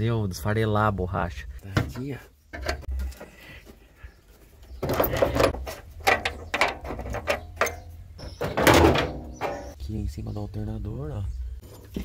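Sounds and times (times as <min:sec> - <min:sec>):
sheet metal clicks knocks and scrapes: 0:04.8 - 0:09.8.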